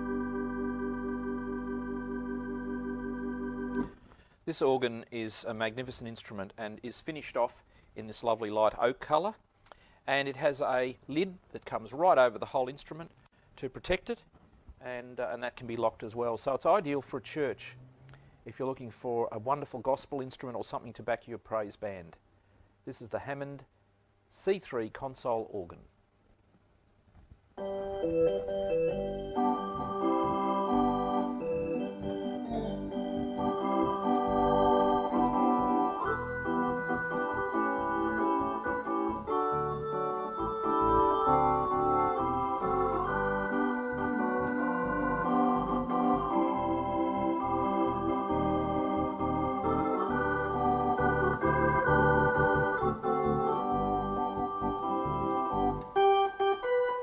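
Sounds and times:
organ chords: 0.0 - 6.0, 27.6 - 57.0.

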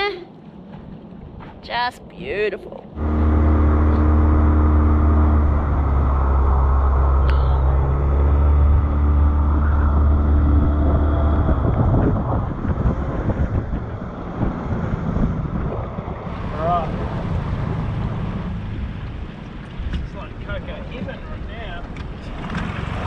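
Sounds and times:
wind noise: 0.0 - 23.0
water noise: 2.8 - 23.0
outboard motor running: 3.0 - 20.0.

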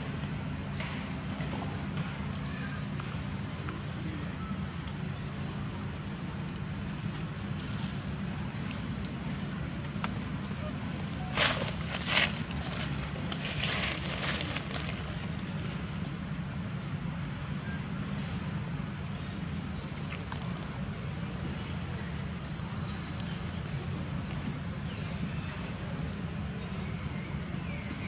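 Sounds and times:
dry leaves rustling and crackling: 10.0 - 15.8.

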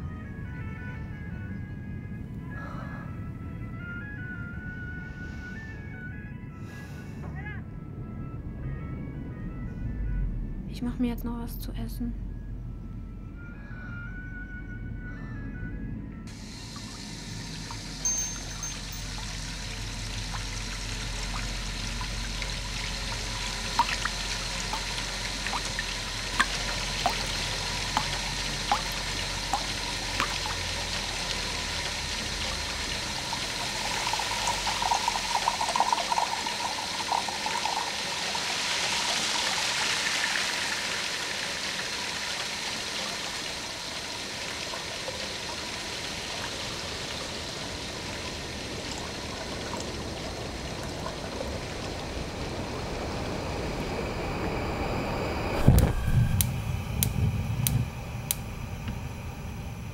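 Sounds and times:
water trickling into metal pot: 16.3 - 52.3
water bubbling: 18.8 - 38.3.

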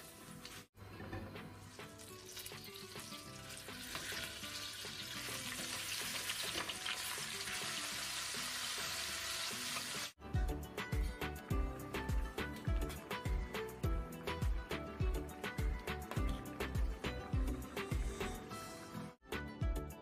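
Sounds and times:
chicken sizzling in butter: 1.6 - 10.2.

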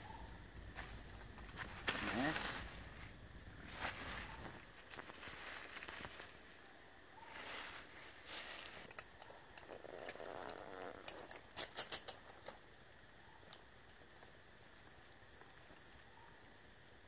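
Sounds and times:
dry leaves rustling and crackling: 0.8 - 6.5, 7.3 - 8.9.

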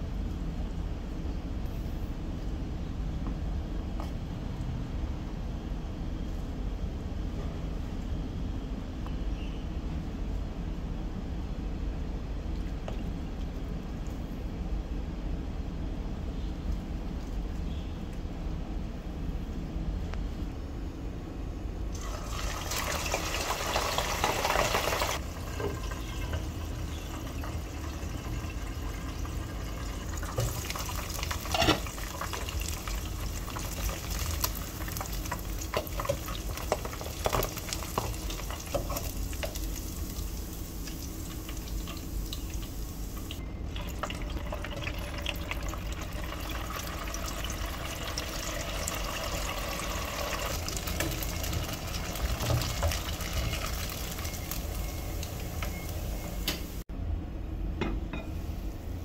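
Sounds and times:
low steady hum: 0.0 - 59.0
food deep-frying in oil: 21.9 - 56.8.

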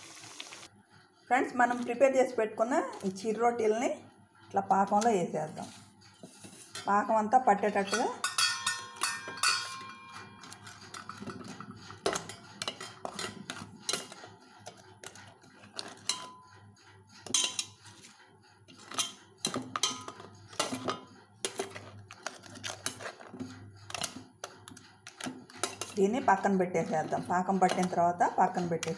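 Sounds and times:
steel spoon clinking against pot: 7.8 - 14.2, 15.8 - 16.4, 17.2 - 17.8, 18.7 - 23.3, 23.9 - 28.9.

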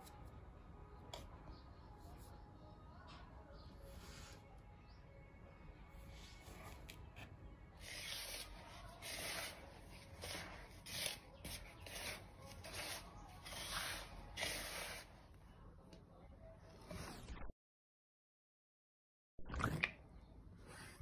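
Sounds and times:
hand stirring dry flour: 7.8 - 15.4.

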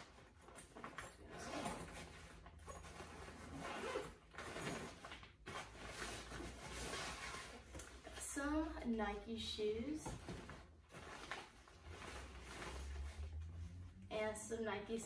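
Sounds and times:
nylon fabric rustling: 0.0 - 8.8, 9.8 - 14.0
backpack zipper pulled open: 2.7 - 4.8.

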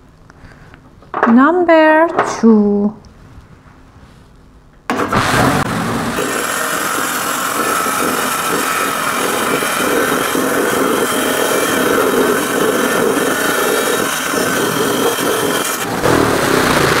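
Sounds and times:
saw blade grinding stone: 6.2 - 17.0.

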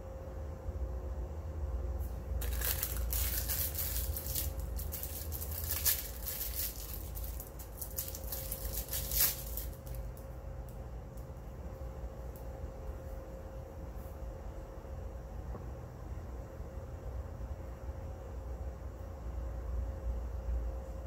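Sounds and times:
crinkly material crackling: 2.0 - 10.3.

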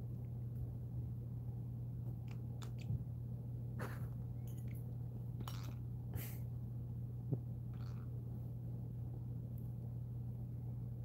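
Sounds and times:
steady low hum: 0.0 - 11.0
cockatoo biting metal spoon: 5.4 - 5.8.

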